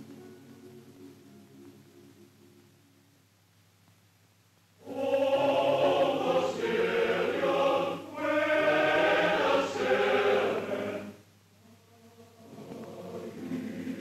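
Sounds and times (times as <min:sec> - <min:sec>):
choir singing: 0:04.8 - 0:14.0.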